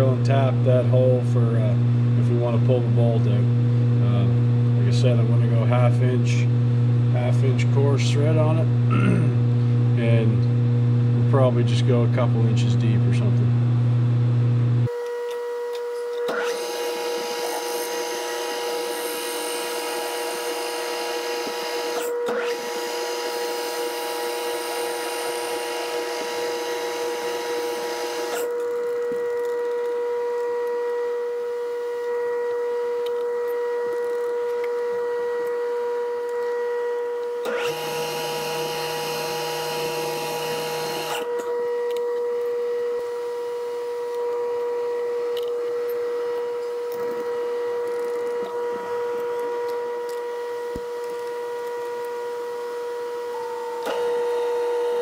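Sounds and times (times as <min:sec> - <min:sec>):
metal lathe whining: 0:15.0 - 0:55.0
turning tool hissing cut: 0:16.3 - 0:28.5, 0:37.4 - 0:41.3.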